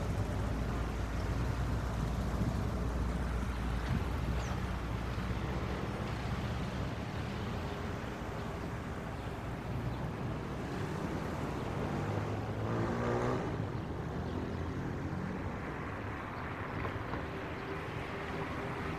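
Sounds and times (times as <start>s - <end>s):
traffic rumble: 0.0s - 18.9s
vehicle engine passing by: 10.6s - 15.6s.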